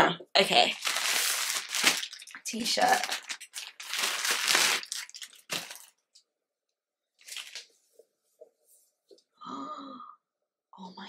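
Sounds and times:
plastic bag crinkling: 0:00.6 - 0:06.2, 0:07.2 - 0:07.7.

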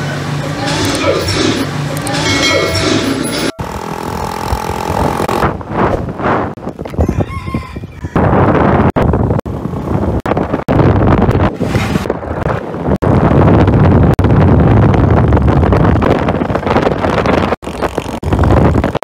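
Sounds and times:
motorcycle wind and road noise: 0:03.3 - 0:19.0
rooster crowing: 0:07.0 - 0:08.3.

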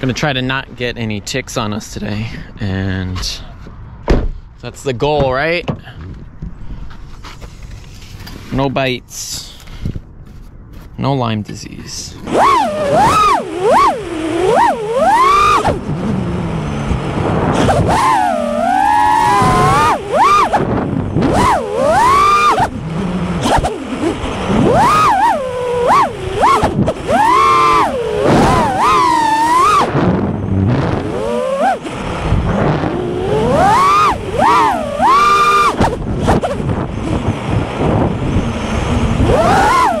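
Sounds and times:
drone motors whining: 0:12.2 - 0:40.0.

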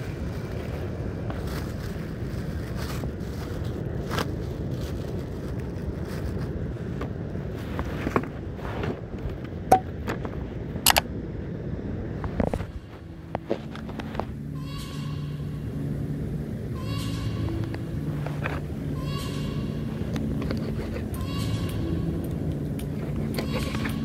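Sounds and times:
wind and surf on microphone: 0:00.0 - 0:14.3
plastic bag crinkling: 0:00.4 - 0:06.8.

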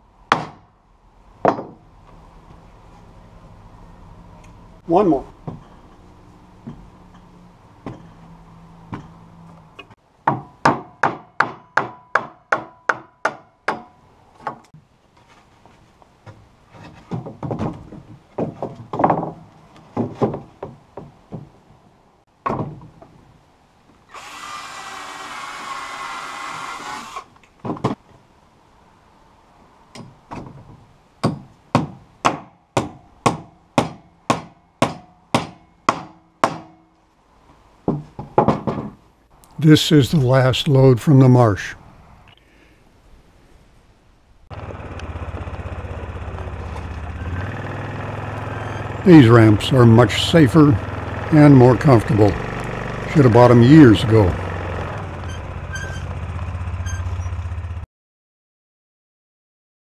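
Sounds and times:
hammer driving nails into wood: 0:00.3 - 0:00.7, 0:10.2 - 0:14.7, 0:31.2 - 0:36.8
cordless drill boring: 0:24.1 - 0:27.3
heavy knocks: 0:37.9 - 0:39.0.

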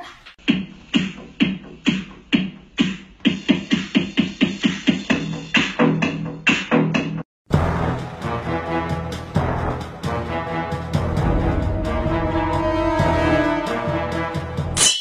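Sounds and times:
music with hard beat: 0:00.4 - 0:15.0.

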